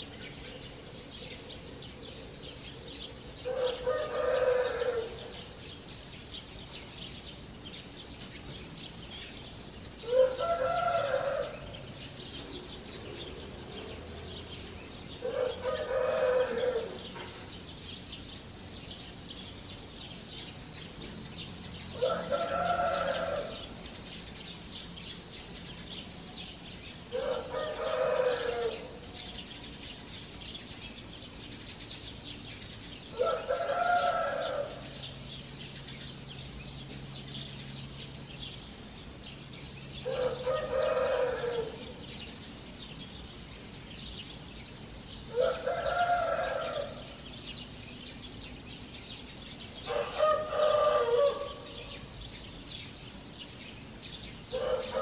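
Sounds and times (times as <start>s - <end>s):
small birds chirping: 0.0s - 55.0s
rooster crowing: 3.5s - 5.2s, 10.1s - 11.7s, 15.3s - 17.0s, 22.0s - 23.7s, 27.2s - 28.9s, 33.2s - 34.8s, 40.0s - 41.9s, 45.3s - 47.1s, 49.9s - 51.8s.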